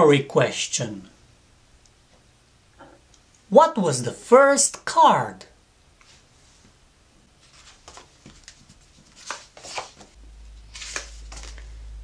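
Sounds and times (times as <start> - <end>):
paper cards rustling and sliding: 7.4 - 12.0
card swishing on card: 7.6 - 11.7
low hum: 10.2 - 12.0.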